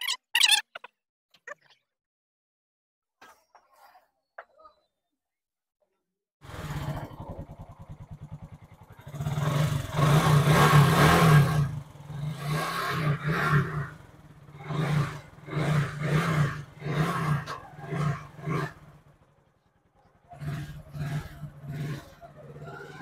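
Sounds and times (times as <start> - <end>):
motorcycle engine idling and revving: 6.4 - 23.0.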